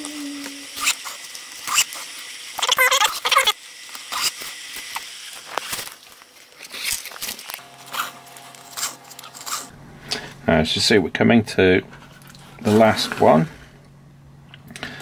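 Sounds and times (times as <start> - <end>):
faint steady hum: 5.5 - 15.0.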